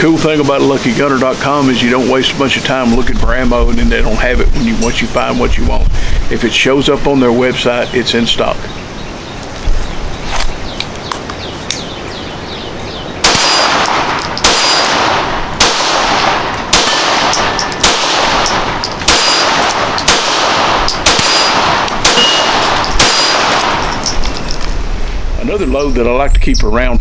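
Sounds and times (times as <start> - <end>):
pistol shots with echo: 13.2 - 24.2.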